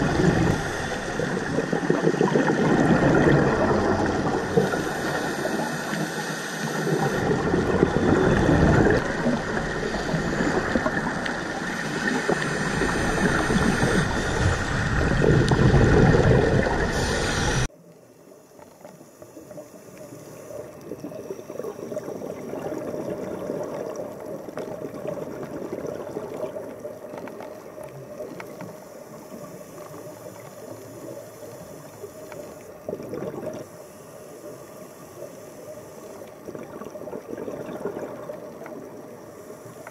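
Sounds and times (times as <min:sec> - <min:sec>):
steady hiss: 0:00.0 - 0:02.8, 0:03.5 - 0:22.4, 0:28.1 - 0:32.9, 0:33.5 - 0:36.5, 0:38.5 - 0:39.9
underwater water noise: 0:00.0 - 0:39.9.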